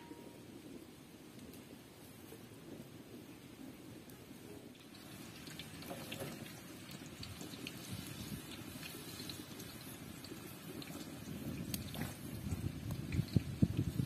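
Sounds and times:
water running and splashing: 4.8s - 14.0s.

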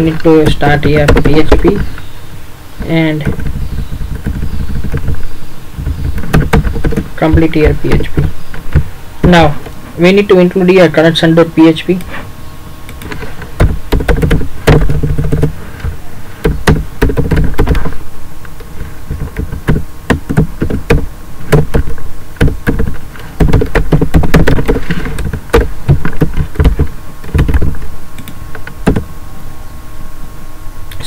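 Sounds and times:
heavier keyboard thuds: 2.8s - 9.7s, 13.0s - 18.1s, 18.7s - 27.9s, 28.6s - 29.1s.

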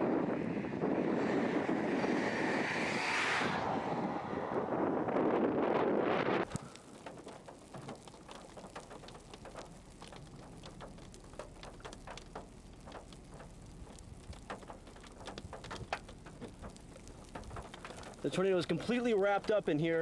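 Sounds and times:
faint low background rush: 3.9s - 20.0s
raindrops tapping: 6.4s - 20.0s.

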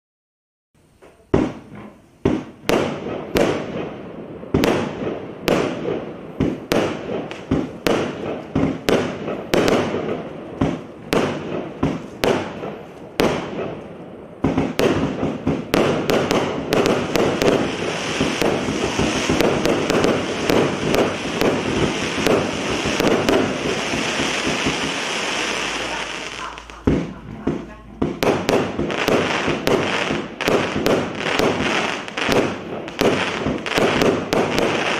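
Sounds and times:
dense firework crackling and hiss: 0.8s - 34.9s
firework bangs with crackle: 0.9s - 34.9s.

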